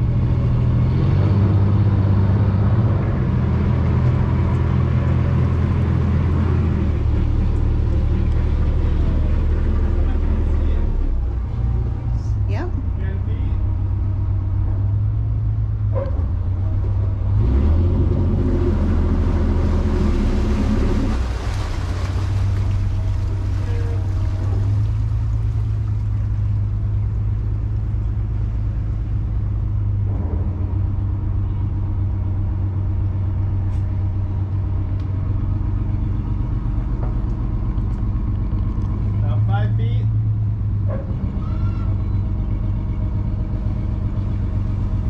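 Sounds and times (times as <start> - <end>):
boat engine humming: 0.0 - 45.0
water rushing: 17.3 - 32.9.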